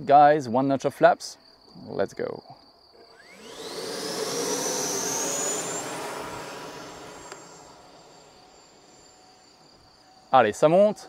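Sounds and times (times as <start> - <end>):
electric ducted fan whine: 3.1 - 10.5
jet rush: 3.2 - 9.2.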